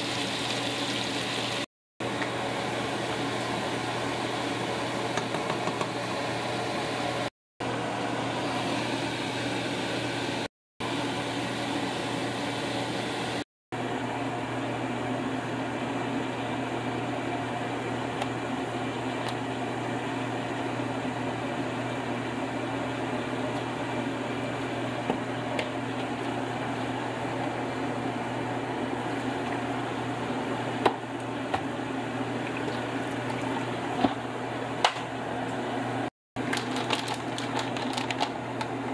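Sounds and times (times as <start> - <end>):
fan whirring: 2.0 - 38.9.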